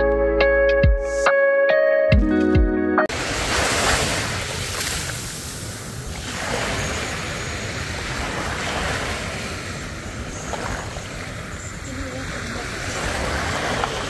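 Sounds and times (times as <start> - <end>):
small waves breaking on sand: 3.1 - 14.0.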